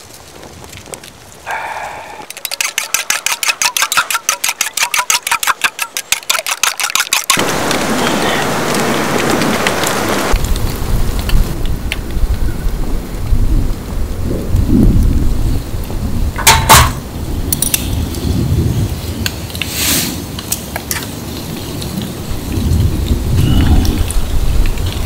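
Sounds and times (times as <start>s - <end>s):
pot simmering hiss: 0.0s - 25.0s
chopsticks whisking egg in cup: 2.3s - 7.4s.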